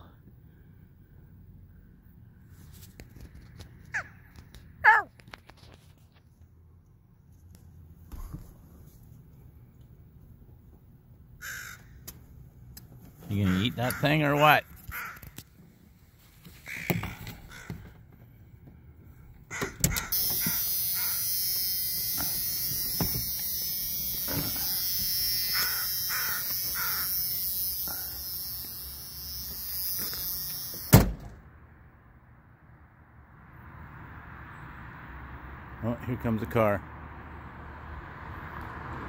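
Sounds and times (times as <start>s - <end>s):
crow cawing: 11.4s - 12.0s, 13.4s - 14.2s, 14.8s - 15.4s, 16.6s - 17.9s, 19.5s - 21.4s, 24.8s - 28.4s.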